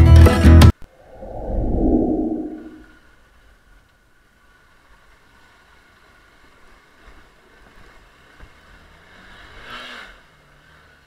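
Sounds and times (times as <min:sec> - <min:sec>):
water washing around wheels: 0:04.0 - 0:09.4.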